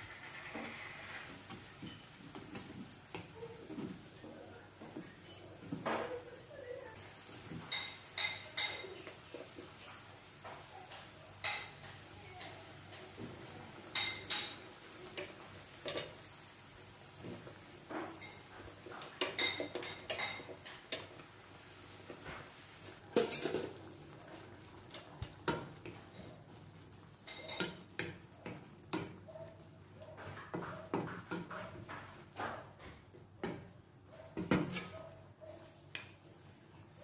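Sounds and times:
sauce simmering: 0.0 - 37.0
spatula knocking and scraping pan: 17.2 - 21.3, 22.0 - 26.6, 27.2 - 36.3.

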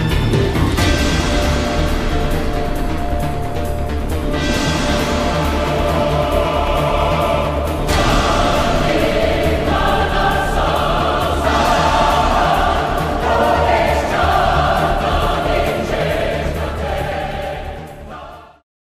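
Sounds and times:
low bass: 0.0 - 18.1
choir singing held notes: 0.2 - 18.6.

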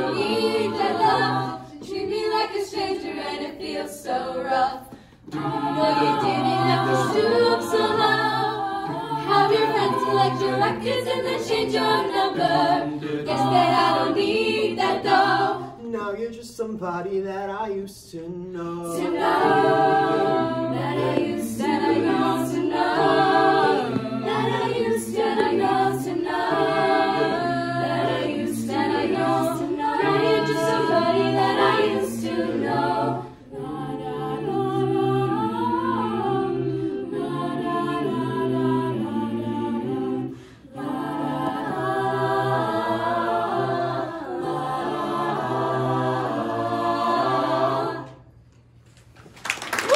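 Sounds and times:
mixed voices singing in harmony: 0.0 - 15.9, 18.6 - 48.4
percussive clicks keeping a beat: 21.0 - 21.9, 23.8 - 24.3.

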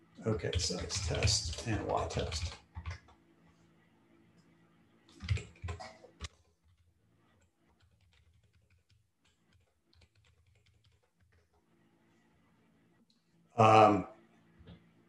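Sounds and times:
typing on keyboard: 0.4 - 3.2, 5.1 - 6.8, 7.4 - 11.5.

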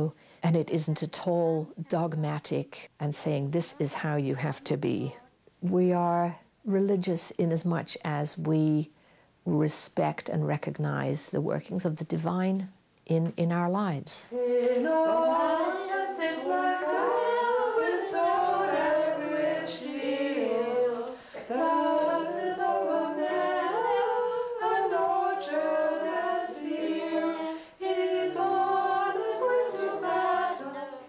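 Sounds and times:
group singing unaccompanied: 14.3 - 31.0.

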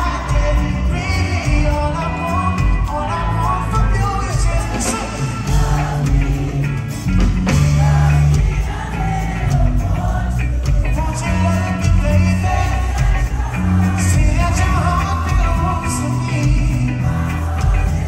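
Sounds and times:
man singing: 0.0 - 6.9, 7.5 - 18.0
heavy bass line: 0.0 - 18.0
live reggae band: 0.0 - 18.0.

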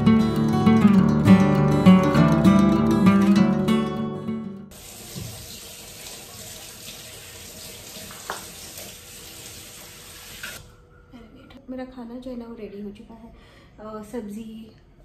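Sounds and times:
tap running into steel sink: 5.0 - 5.6, 8.0 - 8.9.

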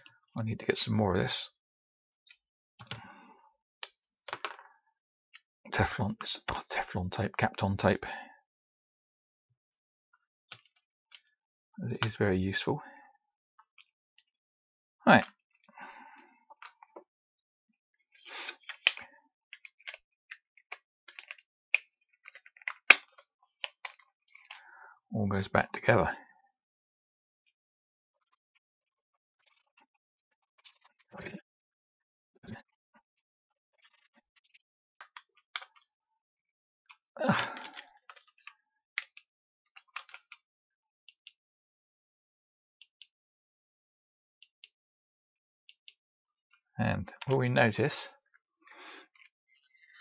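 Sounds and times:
small plastic clicks and taps: 3.8 - 4.7, 18.5 - 24.6, 35.0 - 35.9, 37.6 - 40.4.

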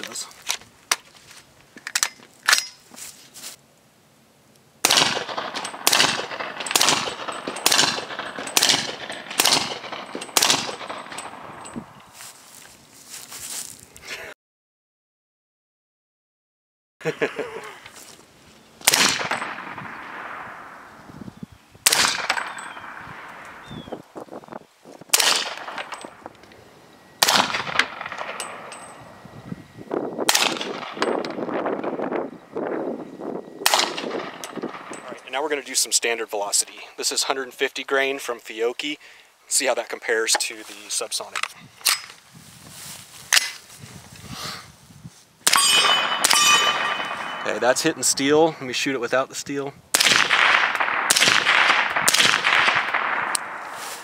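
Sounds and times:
rifle handling clicks: 1.7 - 2.8
suppressed gunshots: 4.8 - 11.8, 18.8 - 21.0, 21.8 - 24.0, 25.1 - 26.4, 27.2 - 29.3, 30.3 - 31.6, 33.6 - 35.2, 49.9 - 53.7
bullet ringing steel target: 4.9 - 11.9, 18.9 - 20.8, 21.9 - 24.0, 25.1 - 26.4, 27.2 - 31.6, 33.6 - 35.3, 45.4 - 48.2.

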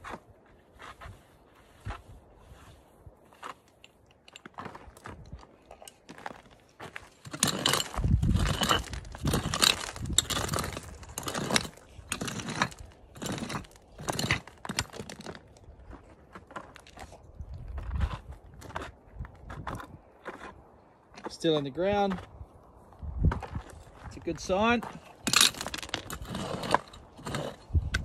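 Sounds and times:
pick striking stony ground: 3.4 - 17.2, 23.2 - 28.0.

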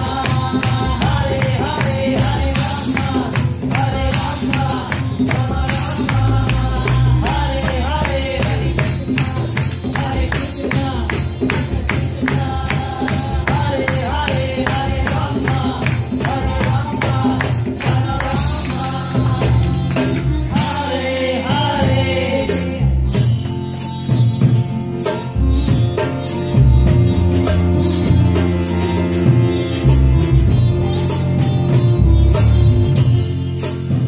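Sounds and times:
women singing a devotional chant: 0.0 - 22.9
percussion beat: 0.0 - 34.0
sitar: 0.0 - 34.0.

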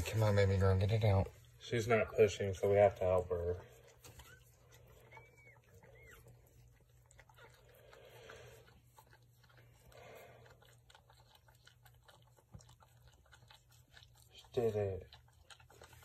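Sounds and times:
dog licking and chewing: 0.0 - 16.0
puppy squeaks: 4.0 - 6.6.

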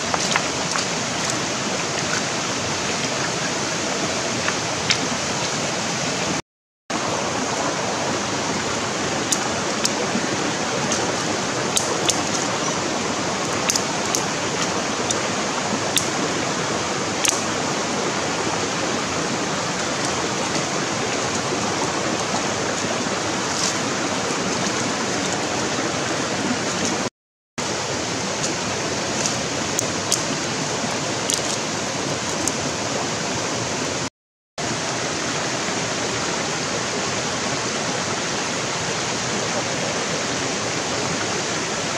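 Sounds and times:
river rushing over rocks: 0.0 - 41.9
stones and sticks clicking: 0.1 - 1.4, 11.8 - 12.5, 13.6 - 14.3, 15.9 - 16.2, 31.3 - 31.6.

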